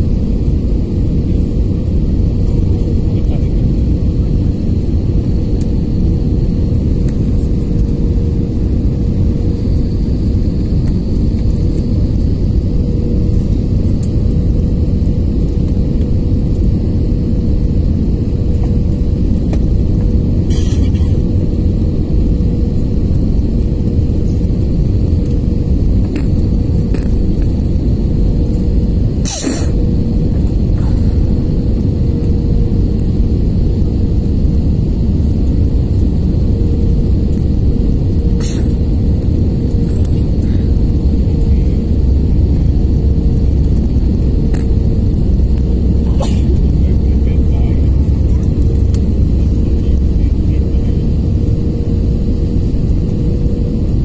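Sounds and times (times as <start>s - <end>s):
jet engines rumbling: 0.0s - 54.0s
steady cabin hum: 0.0s - 54.0s.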